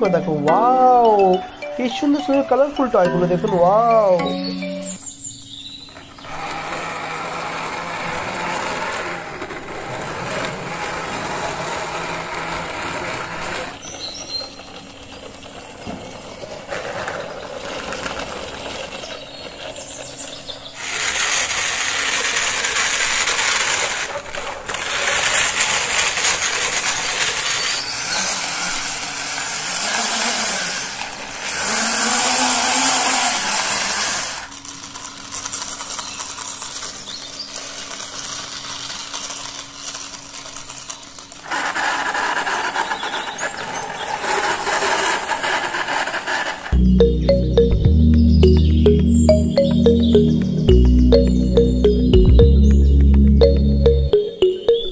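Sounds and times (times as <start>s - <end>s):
plastic toy wheels rattling: 14.6s - 46.7s.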